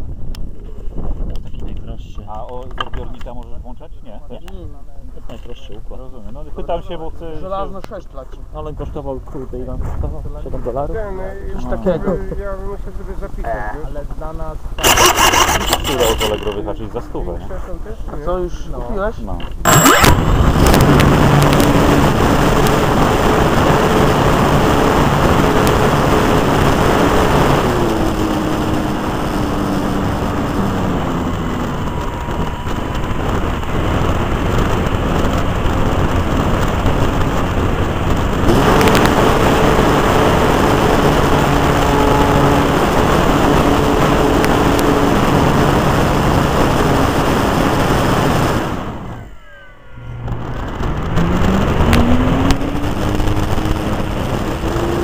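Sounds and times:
model plane engine running: 14.8s - 16.8s, 19.7s - 50.3s
rushing airflow: 50.1s - 55.0s.

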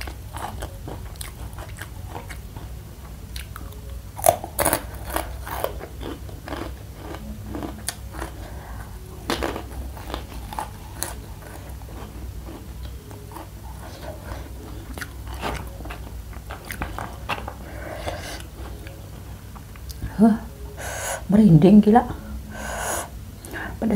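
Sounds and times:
crunchy snack chewing: 3.3s - 8.5s, 9.2s - 18.8s.

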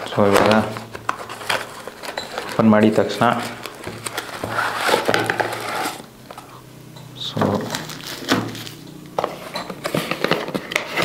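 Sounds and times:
packet rustling: 0.0s - 6.5s, 7.4s - 9.0s.

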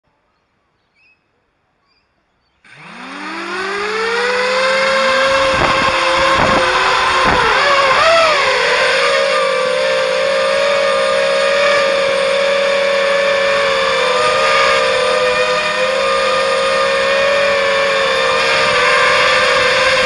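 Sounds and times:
quadcopter motors whining: 2.6s - 20.0s.

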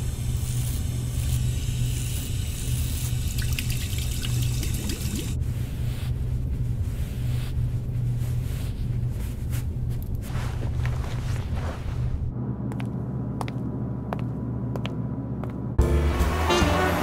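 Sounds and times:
water running from a tap: 3.1s - 5.4s
steady low drone: 12.2s - 17.0s.

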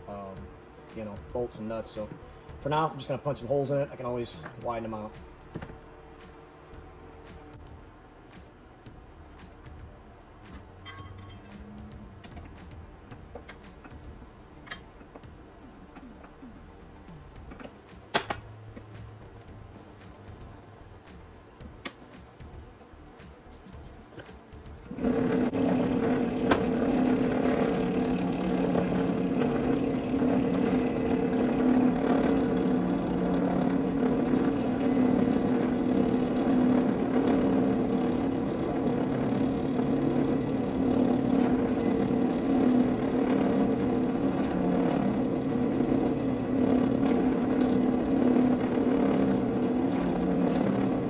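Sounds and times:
drill press drilling aluminum: 24.9s - 51.0s.

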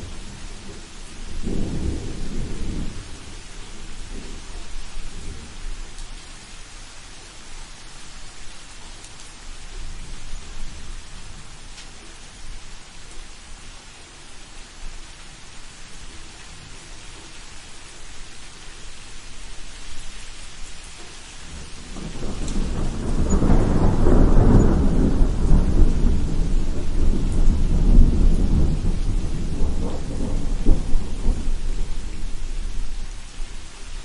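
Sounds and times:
thunder rumbling: 0.0s - 5.6s, 21.5s - 33.6s
steady rain falling: 0.0s - 34.0s.

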